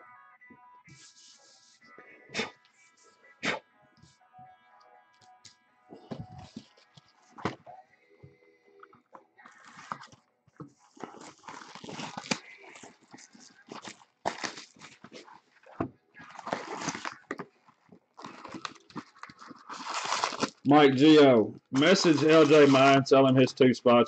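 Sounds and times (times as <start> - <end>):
cardboard box and wrapping rustling: 6.0 - 7.6, 9.5 - 23.0.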